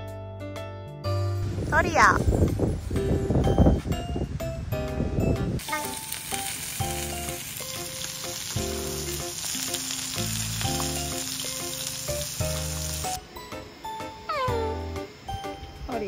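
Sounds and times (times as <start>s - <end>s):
meat sizzling on grill pan: 5.6s - 13.2s.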